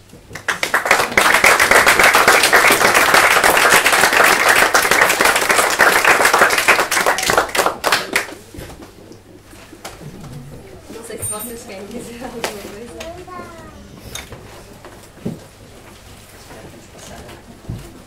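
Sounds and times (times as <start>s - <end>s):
audience applauding: 0.3s - 8.6s.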